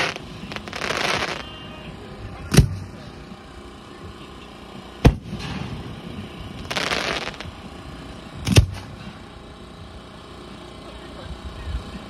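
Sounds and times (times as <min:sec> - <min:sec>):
firework hiss: 0:00.0 - 0:03.2, 0:04.9 - 0:09.4.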